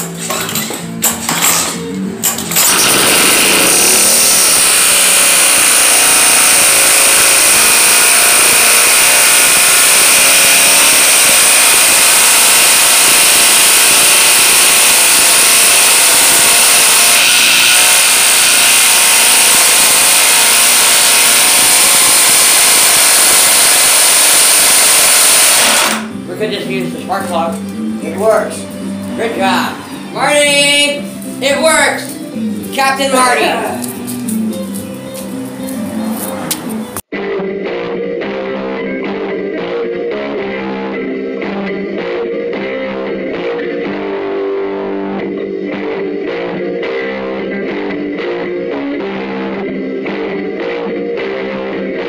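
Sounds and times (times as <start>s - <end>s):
engine running loudly: 2.5s - 26.2s.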